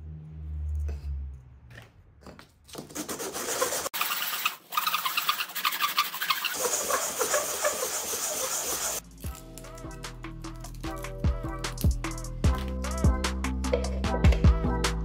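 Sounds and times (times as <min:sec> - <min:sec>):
plastic pipe rasping on sandpaper: 0:02.8 - 0:09.0.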